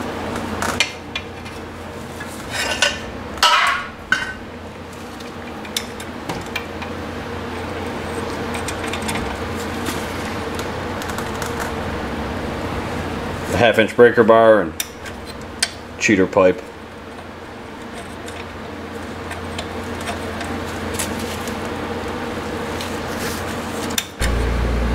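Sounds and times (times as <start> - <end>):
steady background hum: 0.0 - 24.9
metal tools clanking: 2.4 - 4.4.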